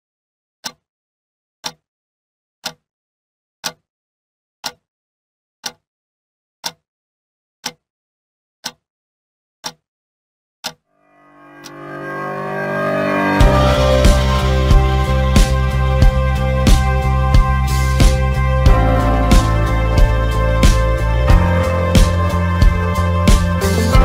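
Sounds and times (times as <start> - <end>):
clock ticking: 6.6 - 6.8, 13.2 - 24.0.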